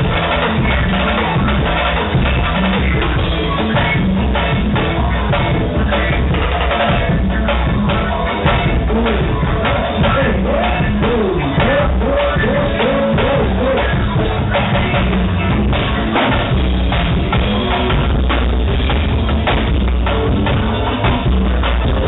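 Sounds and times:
drums beating: 0.0 - 22.0
heavy bass: 0.0 - 22.0
live band playing: 0.0 - 22.0.

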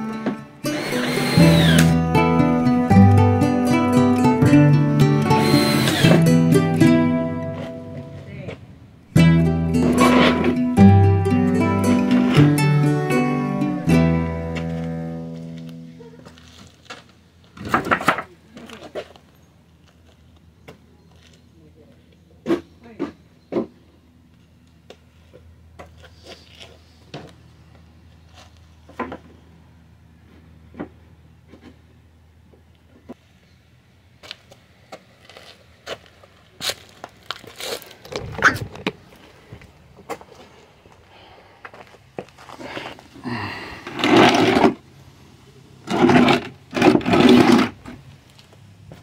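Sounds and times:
cordless drill whirring: 0.7 - 2.0, 5.2 - 6.2.

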